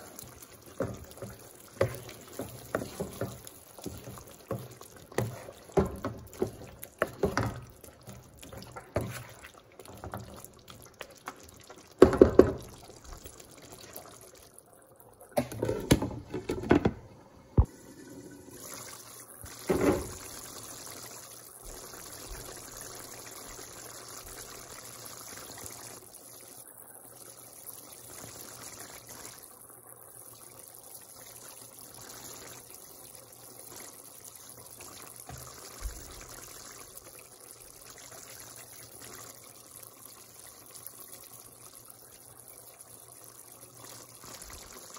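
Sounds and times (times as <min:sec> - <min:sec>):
curry simmering and bubbling: 0:00.0 - 0:16.7, 0:17.6 - 0:44.9
wooden spoon stirring curry: 0:00.3 - 0:11.3.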